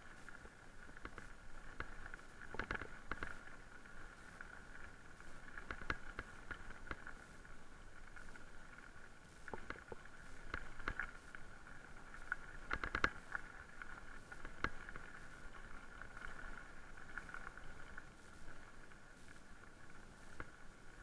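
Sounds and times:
bike rattling over bumps: 0.8s - 4.4s.

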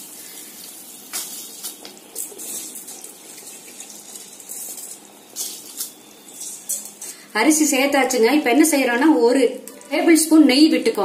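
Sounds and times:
water boiling and bubbling: 0.0s - 7.3s.

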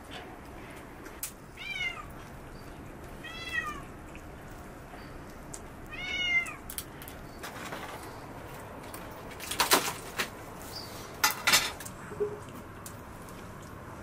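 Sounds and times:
cat meowing: 1.6s - 2.1s, 3.2s - 3.9s, 5.9s - 6.6s.

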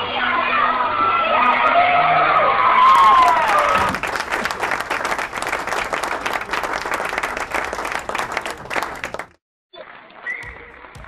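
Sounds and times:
audience applause: 2.8s - 9.4s.

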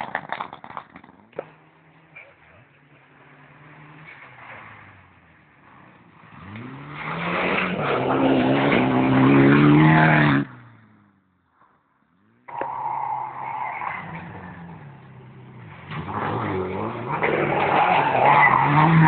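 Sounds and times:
rally car engine accelerating past: 5.7s - 10.9s, 14.0s - 19.0s.

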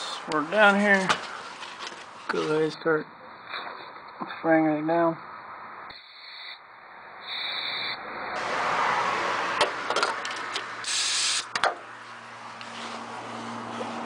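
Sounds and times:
aerosol can spraying: 10.8s - 11.5s.

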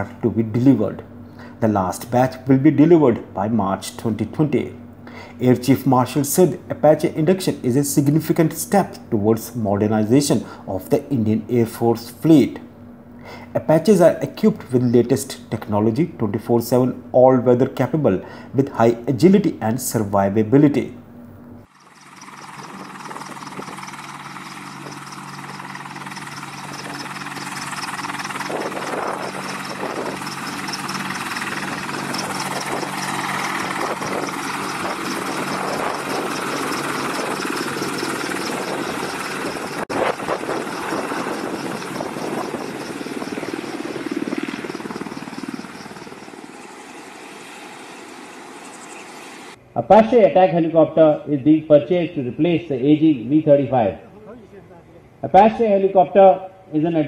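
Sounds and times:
helicopter engine whine and rotors: 0.0s - 2.5s, 21.1s - 49.6s.

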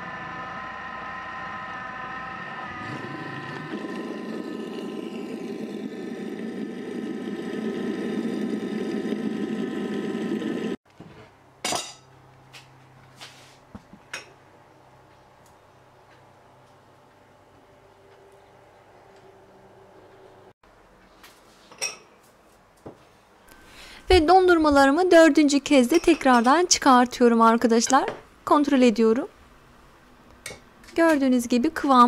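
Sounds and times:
food processor motor whining: 0.0s - 10.8s.

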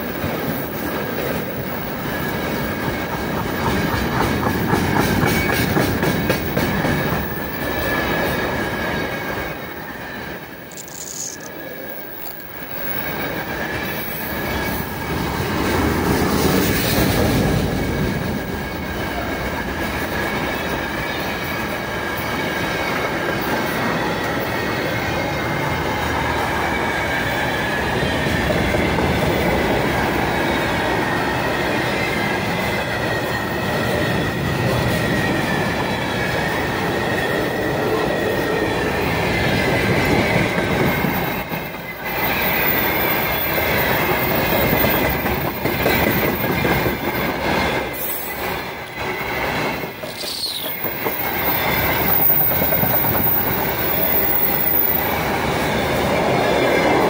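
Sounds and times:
train wheels rumbling and clacking: 0.0s - 57.0s
high wheel squeal: 48.0s - 55.2s.

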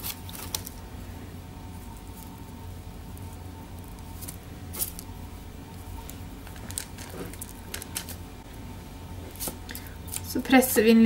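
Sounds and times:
baking paper rustling: 0.0s - 0.8s, 1.6s - 8.3s
low room hum: 0.0s - 11.0s
pretzel sticks clicking: 6.0s - 8.2s.

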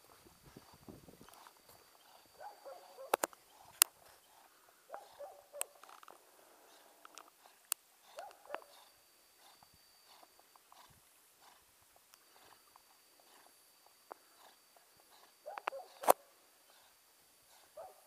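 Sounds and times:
faint background noise: 0.0s - 18.0s
sharp click: 3.0s - 4.0s, 15.5s - 16.2s.

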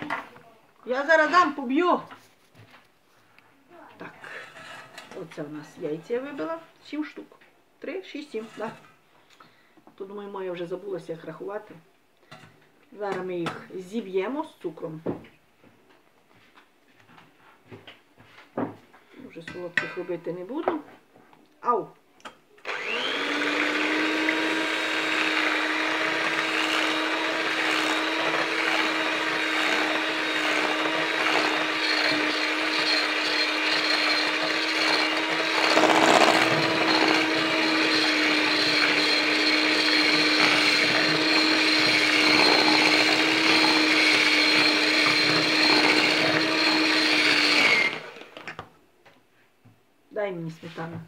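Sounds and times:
electric hand mixer whipping: 22.6s - 48.5s.

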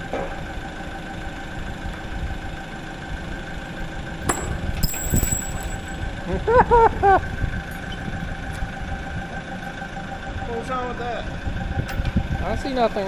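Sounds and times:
forklift engine running: 0.0s - 13.0s
sharp metallic clank: 4.3s - 6.0s.

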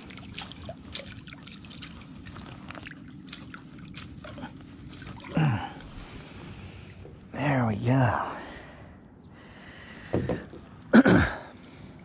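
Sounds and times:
fish splashing in water: 0.0s - 5.7s.

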